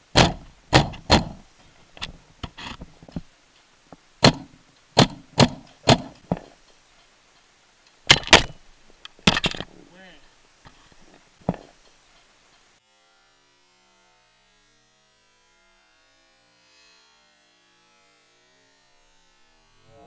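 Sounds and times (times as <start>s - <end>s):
paintball marker firing: 0.2s - 1.5s, 4.2s - 6.6s, 8.1s - 8.6s, 11.4s - 11.8s.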